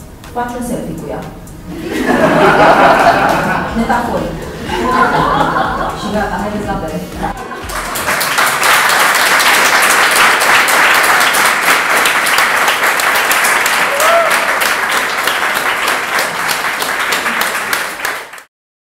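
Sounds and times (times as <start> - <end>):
crowd applauding: 7.4 - 18.5.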